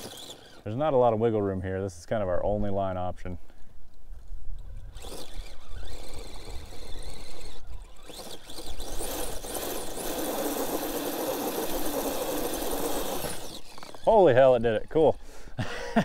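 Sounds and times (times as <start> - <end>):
rc car electric motor whining: 0.0 - 1.0, 4.6 - 15.4.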